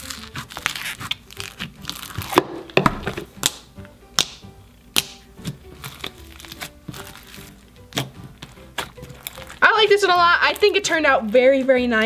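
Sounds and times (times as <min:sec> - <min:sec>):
slime squished popping: 0:00.0 - 0:09.6
soft background music: 0:00.0 - 0:12.0.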